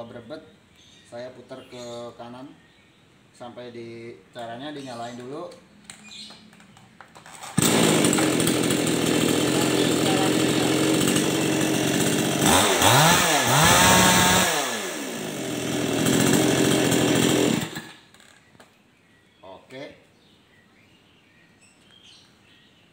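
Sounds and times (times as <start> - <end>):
chainsaw engine idling and revving: 7.3 - 18.4.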